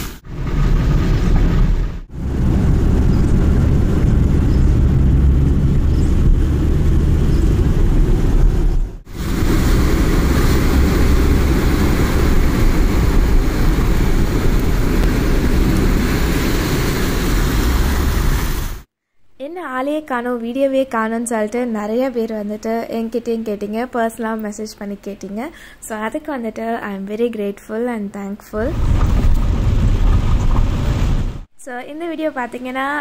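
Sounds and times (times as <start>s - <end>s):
heavy rain: 0.0s - 5.9s, 9.1s - 18.9s, 28.8s - 31.5s
low rumble from car: 0.0s - 18.8s, 28.6s - 31.5s
rushing floodwater: 9.1s - 18.9s.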